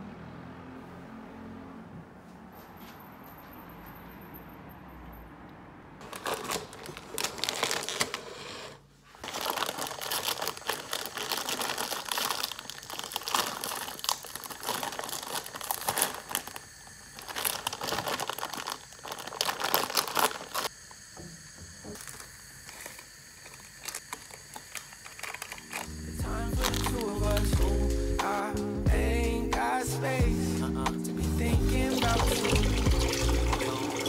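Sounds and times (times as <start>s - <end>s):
plastic packet crinkling: 6.0s - 20.7s, 22.0s - 27.5s, 31.8s - 34.0s.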